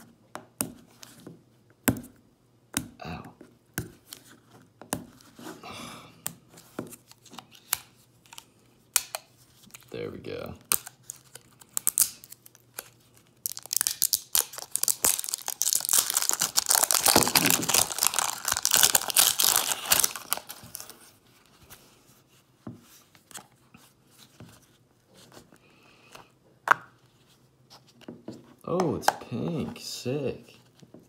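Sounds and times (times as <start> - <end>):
packaging crinkling and tearing: 10.7 - 21.1.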